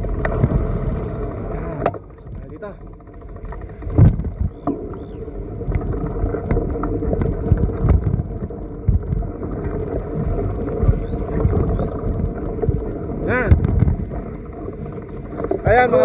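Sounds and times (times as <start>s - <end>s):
pedicab rattling over rough ground: 0.0s - 16.0s
knocks and clatter: 1.8s - 9.3s, 13.4s - 15.7s.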